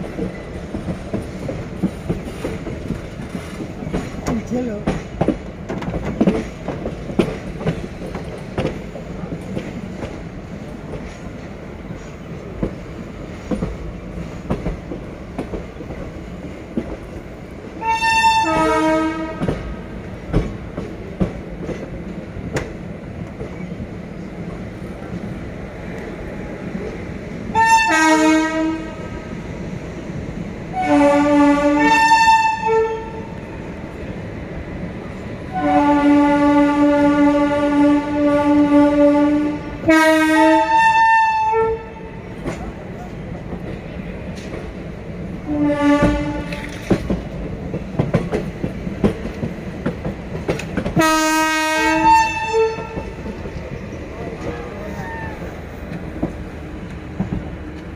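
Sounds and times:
rail clicks: 0.0 - 57.9
train running rumble: 0.0 - 57.9
train horn blasts: 17.8 - 19.6, 27.5 - 29.2, 30.7 - 33.3, 35.5 - 42.1, 45.5 - 46.9, 51.0 - 53.2.

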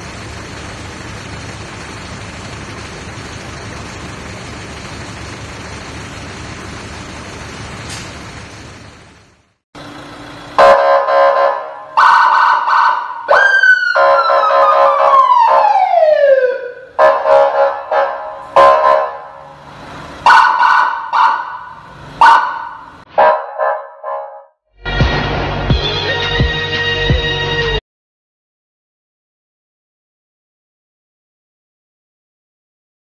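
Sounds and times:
electronic police-style siren: 10.6 - 19.4, 20.2 - 22.9.

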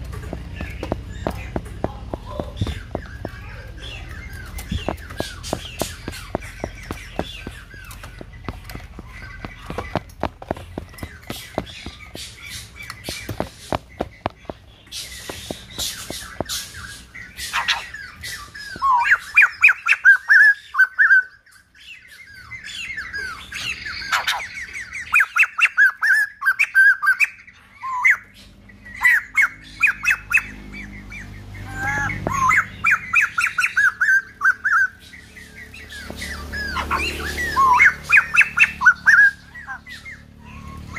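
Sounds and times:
bird ticks and rasping calls: 0.0 - 40.9
bird whistling: 10.8 - 28.3, 28.9 - 40.9.

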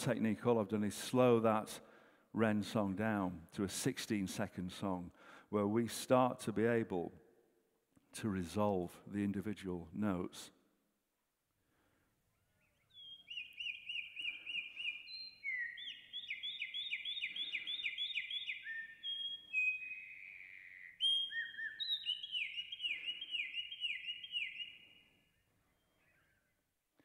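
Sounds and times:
slowed bird song whistles: 12.3 - 26.7.

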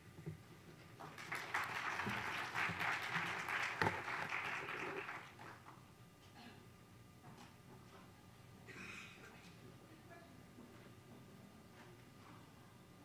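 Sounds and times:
audience applauding: 1.0 - 5.7.

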